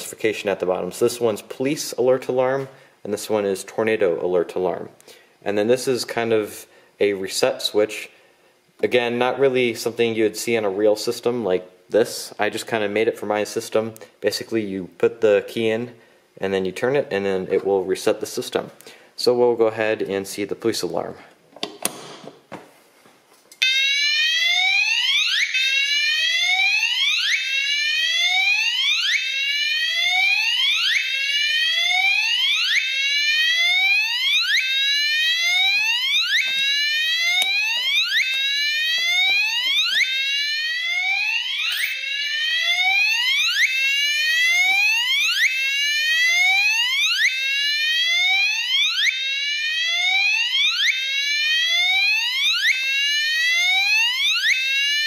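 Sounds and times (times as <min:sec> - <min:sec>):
fire alarm rising whoop tone: 0:23.6 - 0:55.0.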